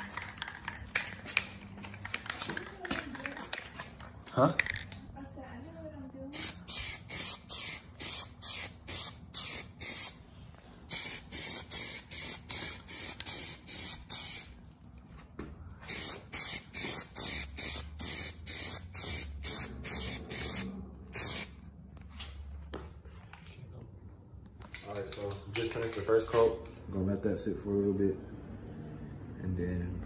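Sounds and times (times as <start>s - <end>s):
aerosol can spraying in short bursts: 6.3s - 10.2s, 10.9s - 14.6s, 15.8s - 21.6s.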